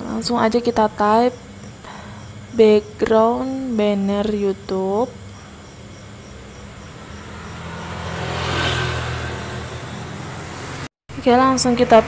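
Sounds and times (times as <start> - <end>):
vehicle passing by: 5.5 - 10.9.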